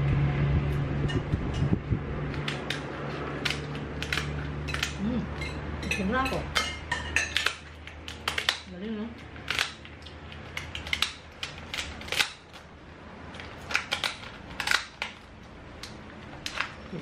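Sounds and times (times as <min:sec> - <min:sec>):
lobster shells cracking: 0:02.3 - 0:05.6, 0:07.2 - 0:17.0.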